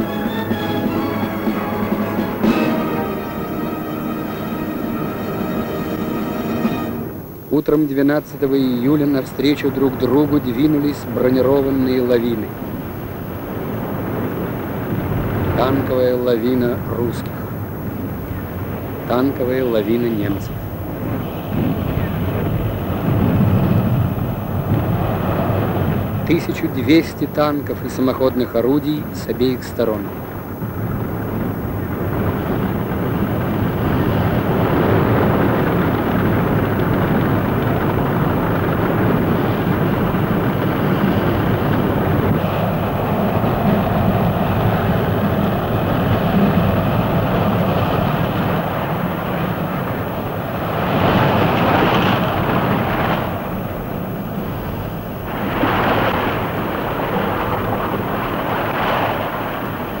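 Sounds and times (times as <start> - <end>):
loud blasts: 0.0 - 27.7
tank engines and tracks rumbling: 0.0 - 60.0.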